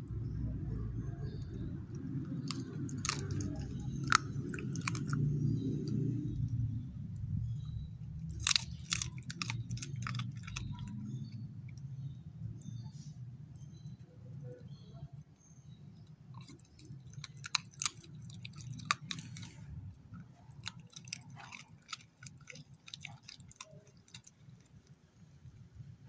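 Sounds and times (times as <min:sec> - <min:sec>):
dog crunching bone: 0:01.9 - 0:06.6, 0:08.0 - 0:11.9, 0:16.4 - 0:24.8.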